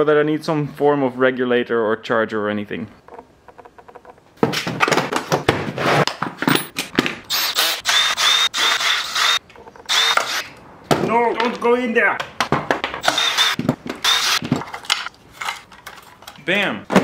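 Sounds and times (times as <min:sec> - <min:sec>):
cordless drill motor whine: 0:07.3 - 0:10.4, 0:13.0 - 0:14.4.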